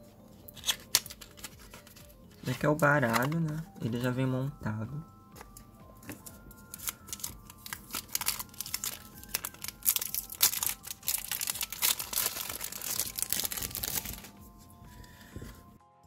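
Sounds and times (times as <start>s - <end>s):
plastic shrink wrap crinkling: 6.6s - 14.4s.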